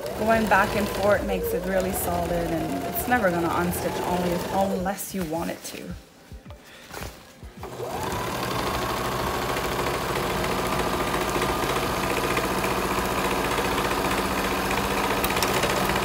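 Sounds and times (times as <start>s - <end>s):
electric sewing machine stitching: 0.0s - 4.8s, 7.6s - 16.0s.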